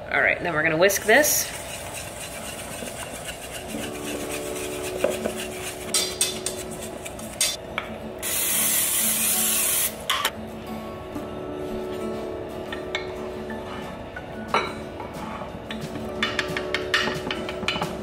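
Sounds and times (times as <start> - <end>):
whisk scraping a steel bowl: 1.0 - 7.6
whisk knocking against bowl: 1.4 - 7.6
aerosol cooking spray hissing: 8.2 - 10.0.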